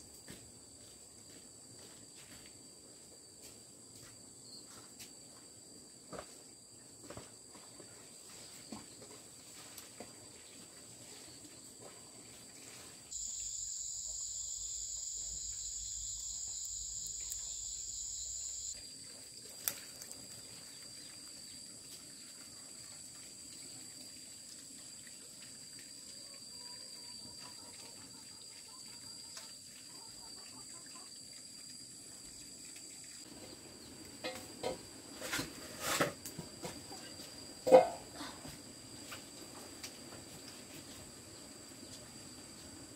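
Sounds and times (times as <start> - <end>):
insect chirring: 13.2 - 19.0.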